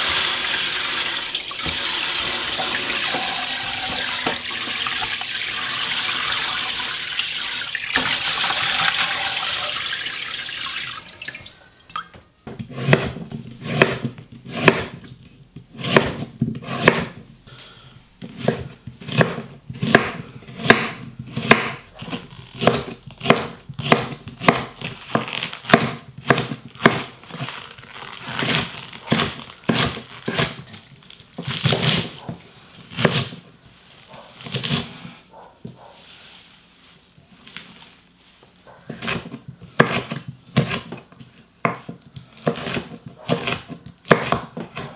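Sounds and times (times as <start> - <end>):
tap water pouring into pot: 0.0 - 12.2
knife chopping on wooden board: 12.6 - 15.0, 15.7 - 17.2, 18.2 - 21.8, 22.6 - 27.1, 38.9 - 41.0, 41.6 - 44.9.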